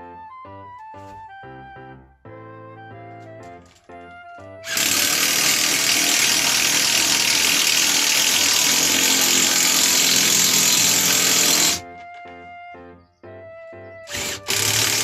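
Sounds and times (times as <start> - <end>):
cordless drill drilling into wood: 4.6 - 11.8, 14.1 - 15.0.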